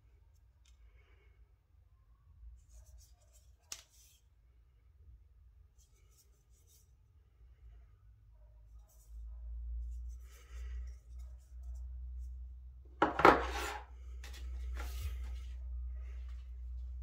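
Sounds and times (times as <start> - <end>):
low steady hum: 4.3 - 17.0
metal hub scraping on desk: 13.0 - 13.9.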